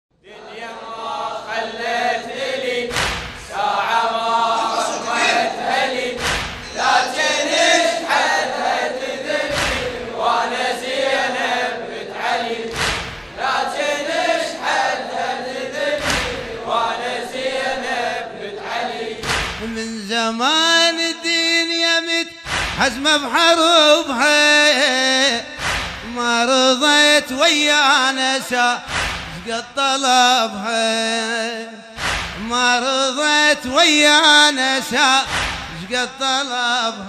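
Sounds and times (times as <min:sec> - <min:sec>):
chorus chanting in unison: 0:00.2 - 0:37.0
heavy beat: 0:04.6 - 0:08.4, 0:22.3 - 0:23.3, 0:25.5 - 0:26.4, 0:28.8 - 0:29.6, 0:31.9 - 0:32.8, 0:35.2 - 0:35.9.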